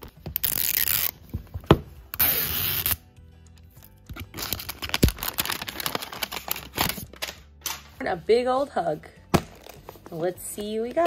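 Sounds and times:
plastic wrapper ripping: 0:00.3 - 0:01.2, 0:04.1 - 0:07.4
crinkling plastic: 0:04.2 - 0:07.9.

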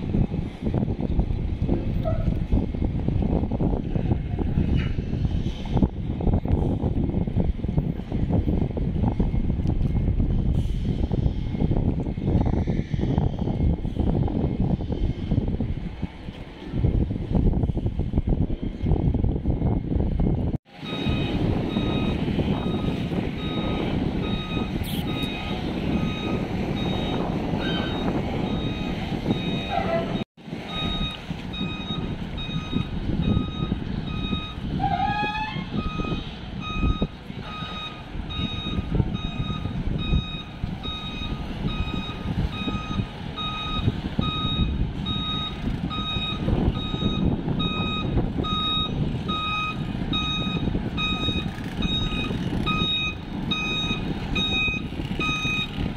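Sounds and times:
diesel engines rumbling: 0:00.0 - 0:55.9
truck reversing alarm beeping: 0:20.7 - 0:55.9.

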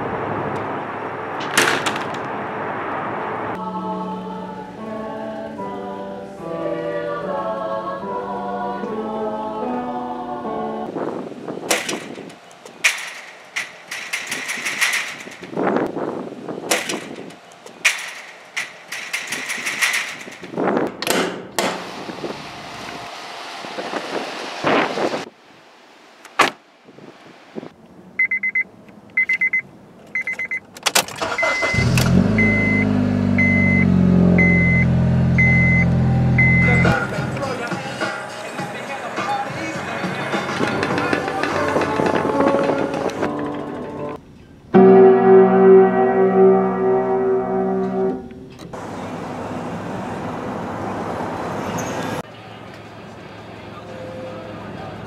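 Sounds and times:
traffic rushing: 0:00.0 - 0:08.2, 0:10.8 - 0:44.7, 0:45.6 - 0:55.0
high warning chime: 0:31.2 - 0:37.1
car engine running: 0:31.7 - 0:37.6
rapid electronic beeps: 0:33.4 - 0:37.1
piano chord: 0:43.2 - 0:48.7.

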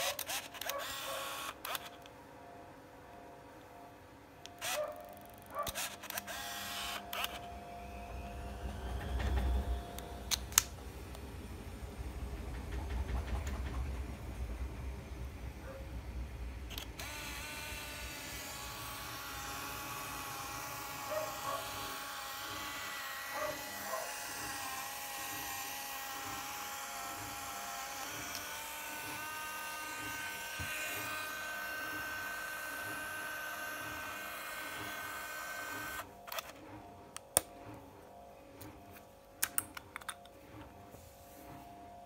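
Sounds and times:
camera film rewind motor whine: 0:00.0 - 0:02.0, 0:04.6 - 0:10.6, 0:16.7 - 0:39.0.

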